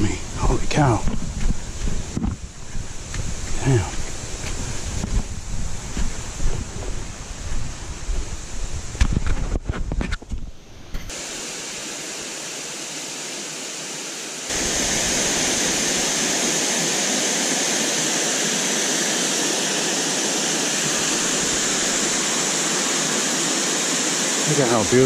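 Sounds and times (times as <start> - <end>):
waterfall rushing: 0.0 - 5.1, 11.1 - 25.0.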